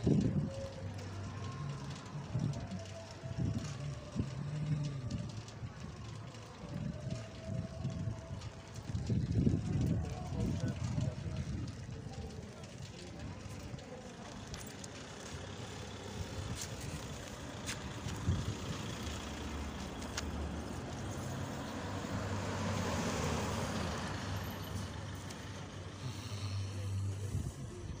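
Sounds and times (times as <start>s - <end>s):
low traffic rumble: 0.0s - 28.0s
pickup truck driving past: 14.4s - 27.5s.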